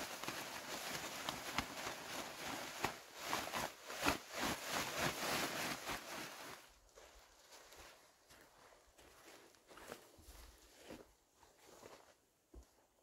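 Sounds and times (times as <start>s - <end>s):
fabric sheet rustling: 0.0s - 7.7s.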